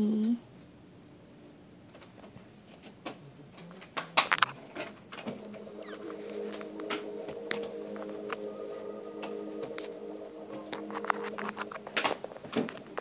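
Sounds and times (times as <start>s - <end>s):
steady held chord: 5.3s - 13.0s.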